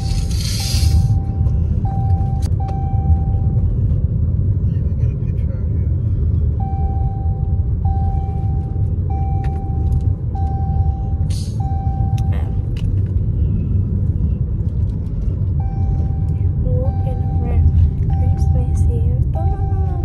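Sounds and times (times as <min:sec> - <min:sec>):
car road and engine rumble: 0:00.0 - 0:20.0
short hiss: 0:00.1 - 0:01.1
steady one-pitch beeps: 0:00.6 - 0:03.6, 0:06.6 - 0:12.6, 0:15.6 - 0:20.0.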